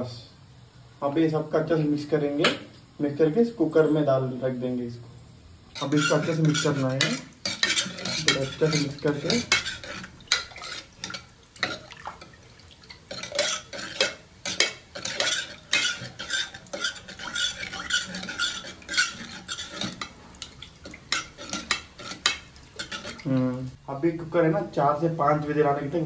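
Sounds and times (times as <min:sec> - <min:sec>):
metal spoon scraping pot: 0:05.7 - 0:23.7.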